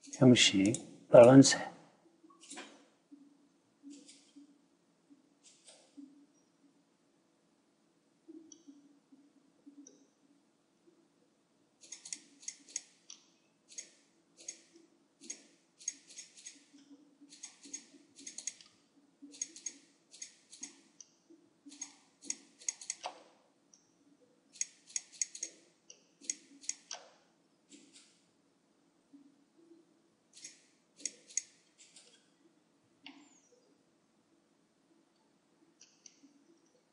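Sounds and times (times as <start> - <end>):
computer mouse clicking: 8.4 - 8.8, 11.8 - 23.9, 24.6 - 28.2, 30.4 - 32.3, 35.8 - 36.8.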